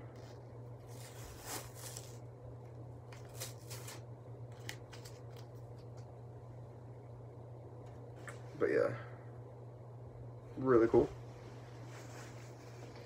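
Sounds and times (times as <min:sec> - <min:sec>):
scratchy rustles: 0:00.8 - 0:02.2.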